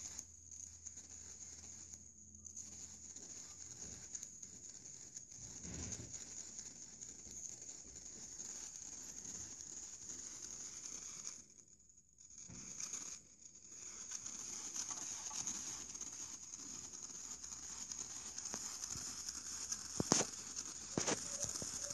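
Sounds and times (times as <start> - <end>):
electric sparks crackling: 0.0 - 21.9
steady high whine: 14.4 - 21.9.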